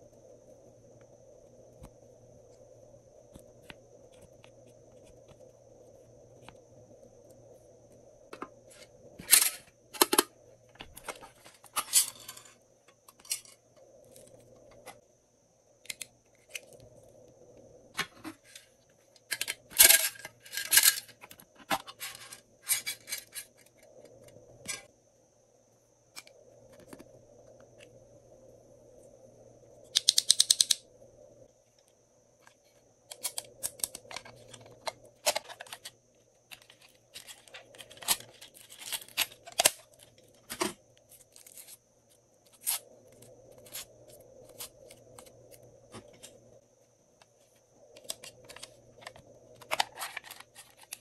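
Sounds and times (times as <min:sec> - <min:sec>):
faint hum: 0:00.0 - 0:51.0.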